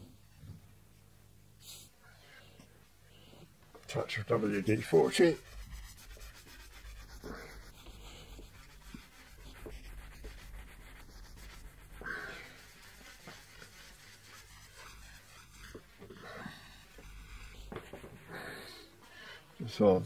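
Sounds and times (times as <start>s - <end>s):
cloth rubbing on metal plate: 4.1s - 18.9s.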